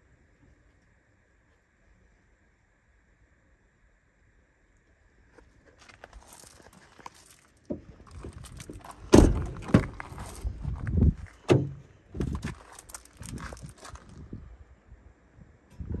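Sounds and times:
truck doors shutting: 7.7s - 10.7s, 11.4s - 12.3s.

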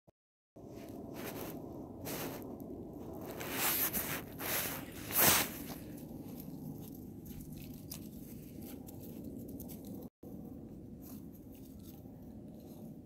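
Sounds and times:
rustling and scuffing: 0.7s - 2.5s, 3.1s - 10.0s.

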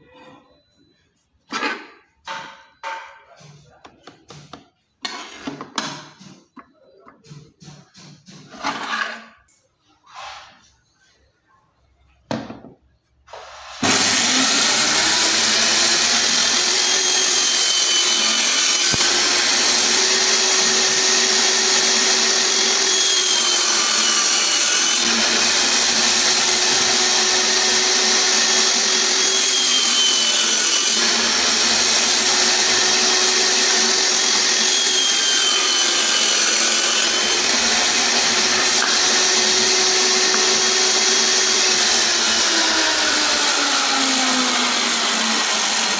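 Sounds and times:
table saw cutting wood: 13.3s - 45.9s.

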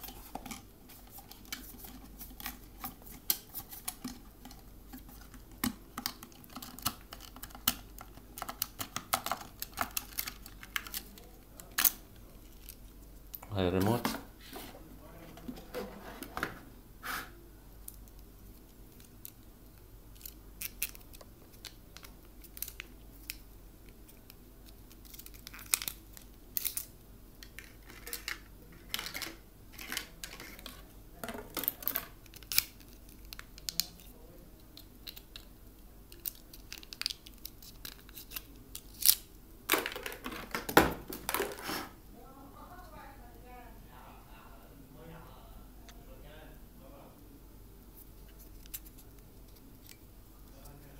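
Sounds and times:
packaging crinkling and rustling: 36.1s - 42.0s.

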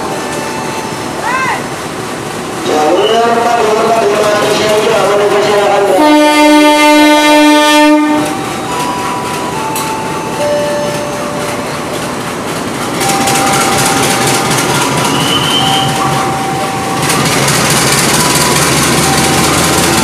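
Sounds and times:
train running past: 0.0s - 20.0s
diesel locomotive horn: 4.9s - 8.6s.

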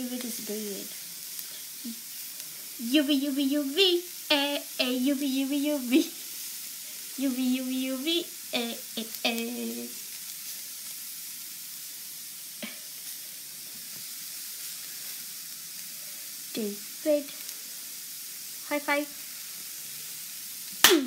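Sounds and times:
vegetables sizzling in a frying pan: 0.0s - 21.0s
person singing: 2.8s - 6.2s, 7.2s - 10.0s.

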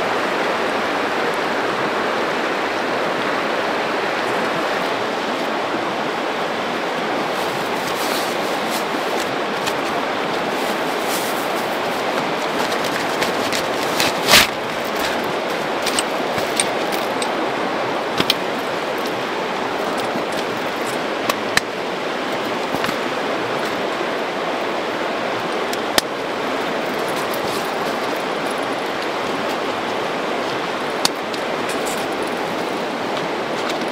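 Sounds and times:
river water rushing: 0.0s - 33.9s
cloth clicking and rustling: 7.3s - 17.4s, 18.1s - 23.8s, 25.7s - 30.0s.

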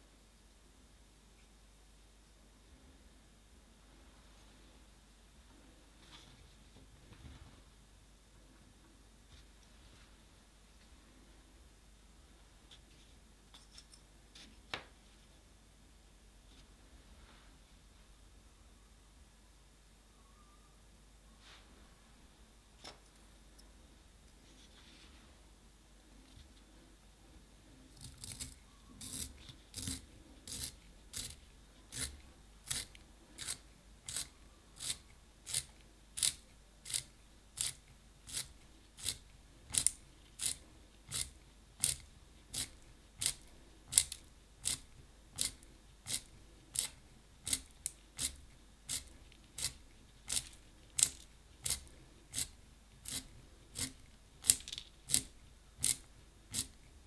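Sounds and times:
pencil sharpener scraping: 28.0s - 44.8s, 45.4s - 56.8s.

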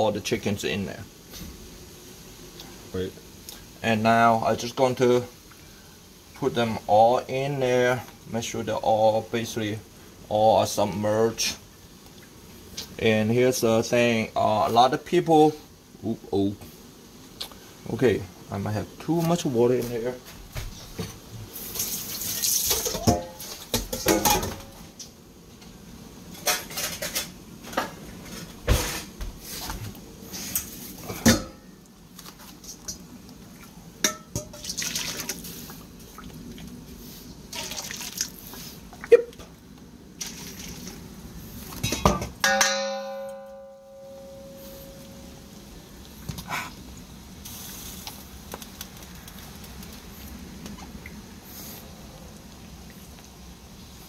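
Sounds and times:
water splashing and pouring: 34.4s - 36.6s, 37.5s - 39.1s, 40.2s - 41.0s
short pitched ringing tone: 42.5s - 45.4s.

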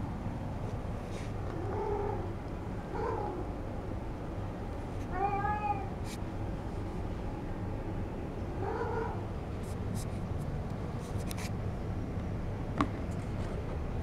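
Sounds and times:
cat meowing: 5.0s - 6.0s.

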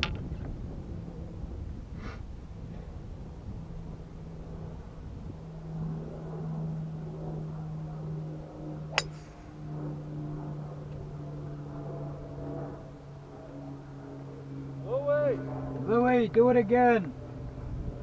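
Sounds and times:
golf cart humming: 8.8s - 10.1s.

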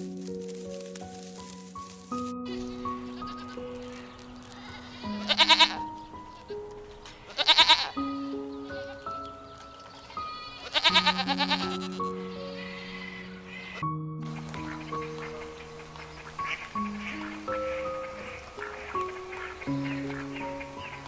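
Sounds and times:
soft background music: 0.0s - 21.0s
goats bleating: 3.1s - 5.9s, 7.1s - 8.2s, 10.0s - 13.8s.

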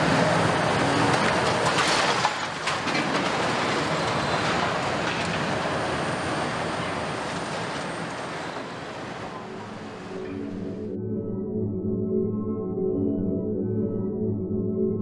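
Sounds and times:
excavator engines under load: 0.0s - 10.6s
concrete grinding and clattering: 0.8s - 5.8s.

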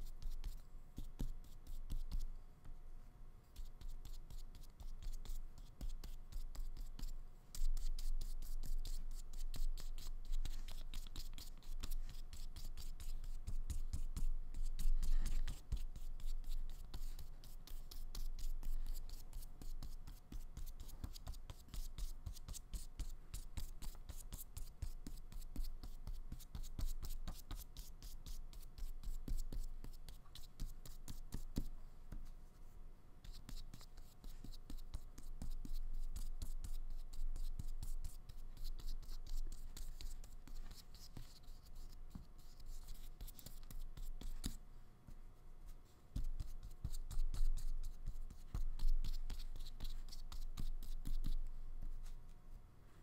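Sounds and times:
paintbrush scrubbing paper: 3.6s - 31.7s.

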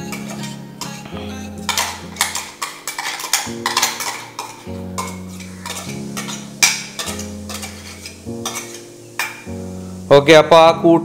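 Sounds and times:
metal spoon scraping steel jar: 1.6s - 9.4s.

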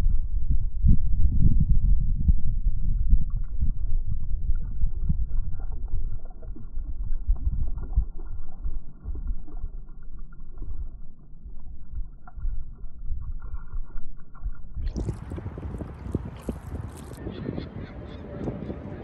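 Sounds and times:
wind rumbling on microphone: 0.0s - 19.0s
water and paddle splashes: 14.9s - 17.2s.

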